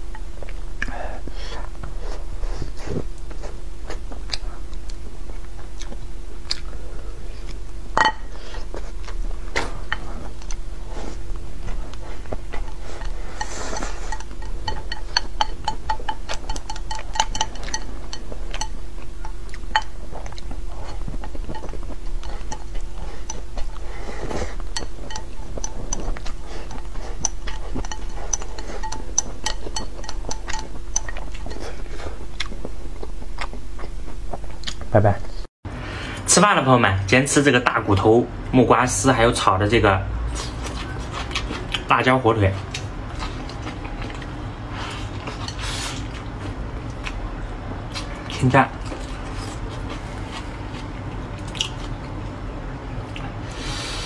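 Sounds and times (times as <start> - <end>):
low steady hum: 0.0 - 54.0
chewing: 1.6 - 7.6, 8.4 - 34.9, 40.3 - 41.9, 42.6 - 52.2
chopsticks clicking on ceramic bowl: 12.6 - 23.8, 24.7 - 31.6.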